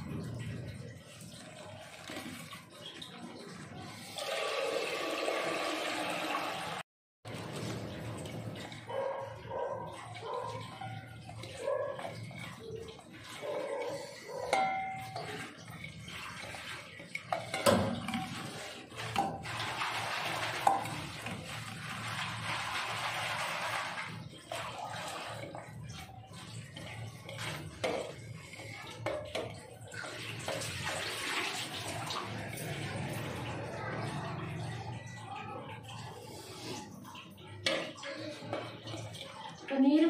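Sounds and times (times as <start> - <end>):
tap water running into sink: 0.0 - 40.0.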